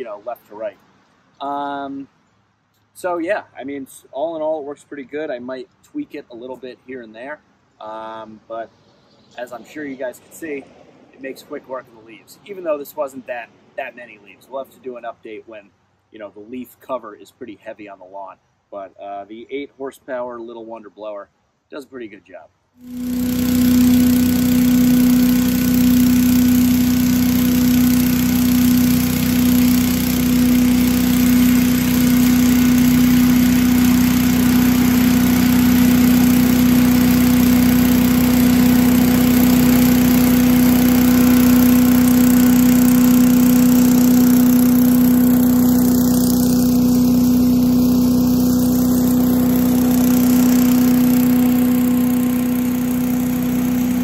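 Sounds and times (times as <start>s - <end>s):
leaf blower engine drone: 22.8s - 54.0s.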